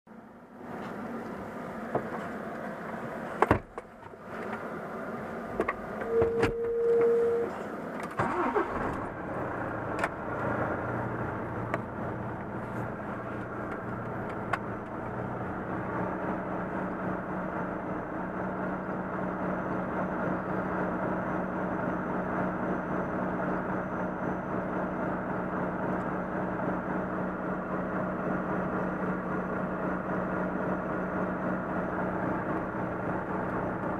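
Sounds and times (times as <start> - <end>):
diesel truck engine starting: 4.7 - 33.9
short beep: 6.0 - 7.5.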